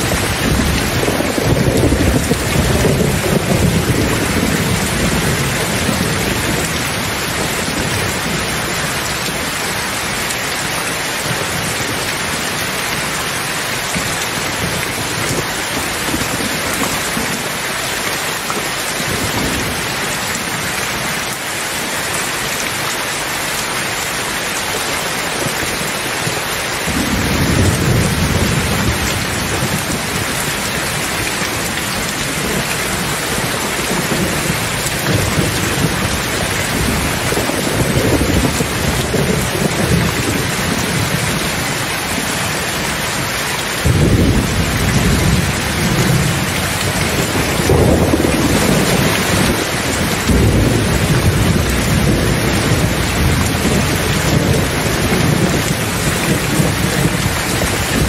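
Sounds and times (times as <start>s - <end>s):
thunder rumbling: 0.0s - 10.3s, 26.7s - 58.0s
steady rain: 0.0s - 58.0s.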